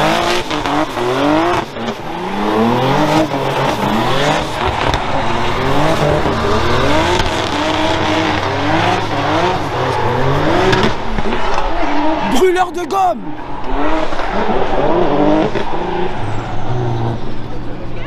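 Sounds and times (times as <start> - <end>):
car engine revving hard: 0.0 - 12.5, 13.3 - 18.0.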